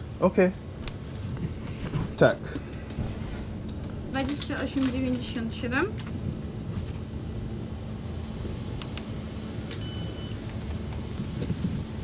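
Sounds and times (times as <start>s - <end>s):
low machinery hum: 0.0s - 12.0s
short electronic beep: 9.8s - 10.4s.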